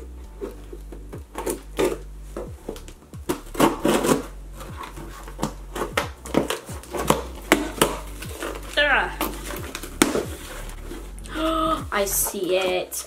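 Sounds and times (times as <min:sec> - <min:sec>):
hands tearing tape and cardboard: 0:00.4 - 0:11.4
scissors slitting tape: 0:02.7 - 0:04.7.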